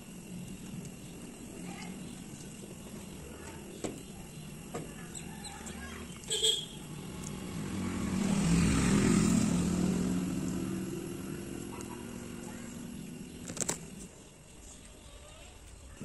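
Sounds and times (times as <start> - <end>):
vehicle engine passing by: 5.9 - 14.0.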